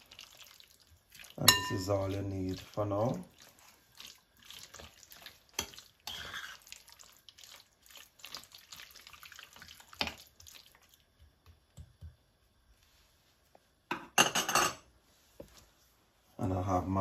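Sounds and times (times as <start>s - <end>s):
wet splashing and squelching: 0.0s - 11.0s.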